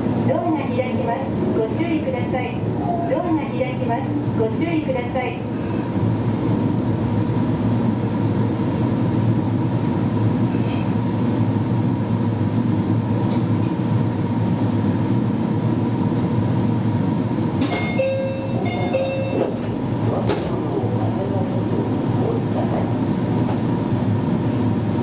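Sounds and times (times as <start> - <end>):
electric train hum with high whine: 0.0 - 25.0.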